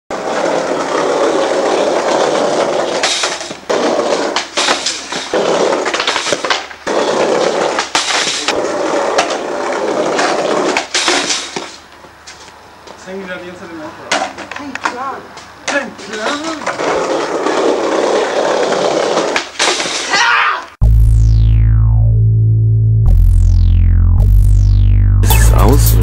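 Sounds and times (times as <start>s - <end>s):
skateboard clacks: 0.1s - 12.1s, 14.1s - 20.2s
skateboard wheels rolling on pavement: 0.1s - 20.8s.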